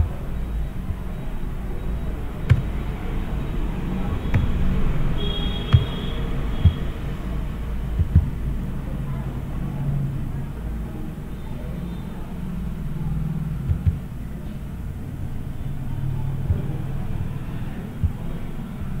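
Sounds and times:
knocks and taps: 2.5 - 2.8, 4.3 - 4.6, 5.7 - 6.0, 8.0 - 8.4, 13.7 - 14.1, 18.0 - 18.3.

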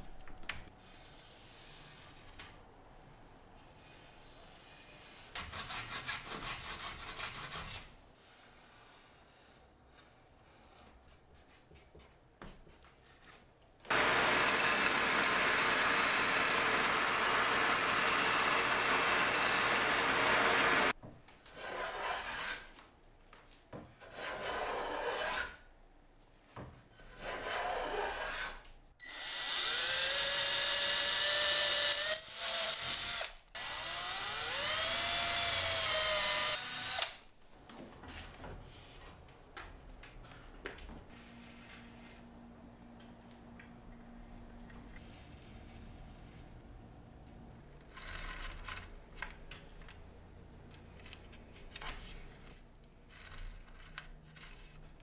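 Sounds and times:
electric drill boring: 13.9 - 20.9, 29.1 - 37.2
power tool cutting wood: 13.9 - 20.9, 29.0 - 37.2.

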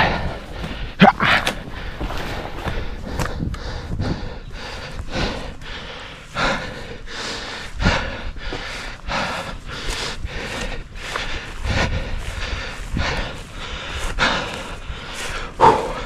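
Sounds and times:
man panting hard: 0.0 - 16.0
footsteps through tall grass: 0.3 - 4.0, 8.4 - 16.0.

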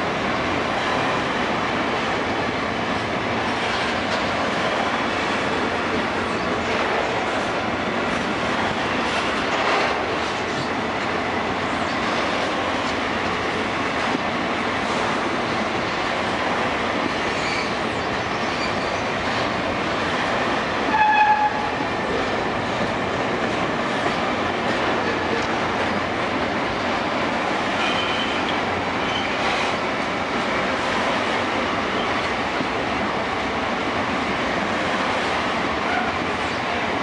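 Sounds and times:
train wheels rolling on rails: 0.0 - 37.0
wheel squeal: 17.4 - 19.0, 29.0 - 29.4.

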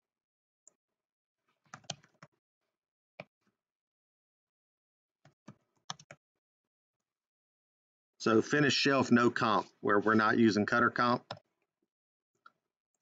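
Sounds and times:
typing on keyboard: 1.7 - 2.3, 5.3 - 6.2.

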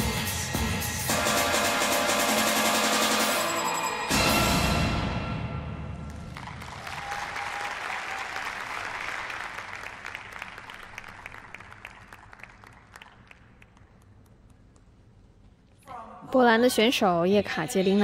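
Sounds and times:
audience applause: 6.1 - 14.0.

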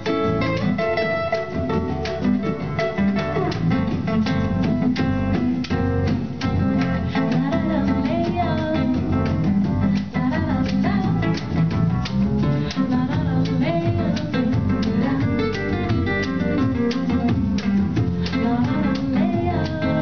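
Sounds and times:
woman singing: 6.5 - 11.8, 12.4 - 20.0.

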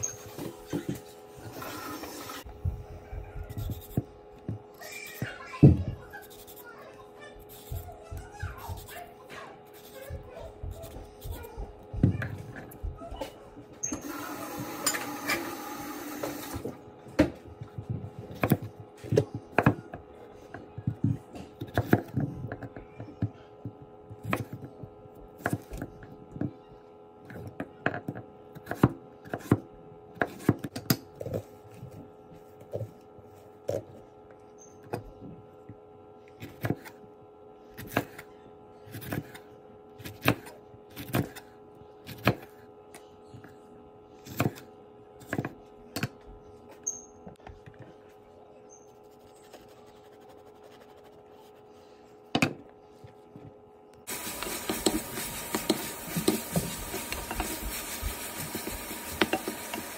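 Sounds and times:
wooden spatula scraping: 54.1 - 59.9.

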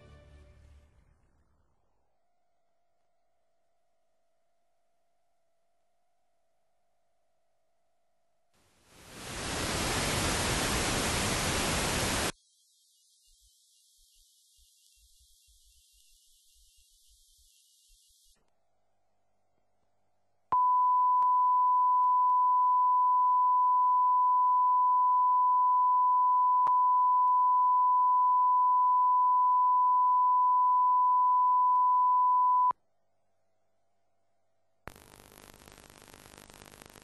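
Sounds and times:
faint hiss: 8.6 - 18.4
high-pitched test tone beep: 20.6 - 32.7.

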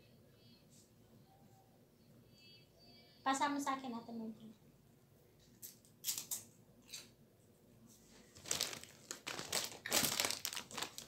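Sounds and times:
plastic bag crinkling: 8.2 - 11.0.

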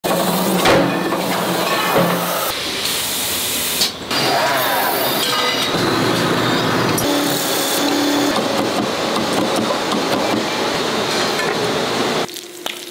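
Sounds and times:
factory machinery hiss and hum: 0.0 - 12.9.

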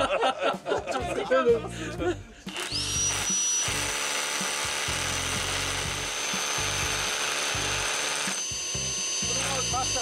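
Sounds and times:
drill boring into wood: 2.5 - 10.0.

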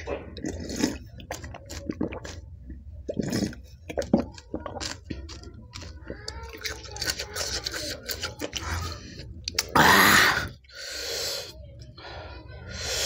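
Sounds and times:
person slurping from a bowl: 0.0 - 2.4, 3.0 - 5.4.

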